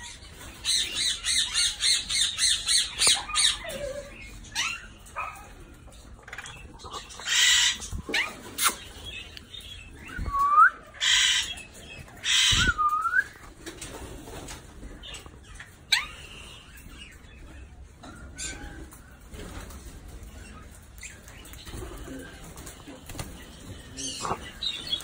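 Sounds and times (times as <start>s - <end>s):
parakeets screeching: 6.2s - 9.3s, 10.9s - 12.6s.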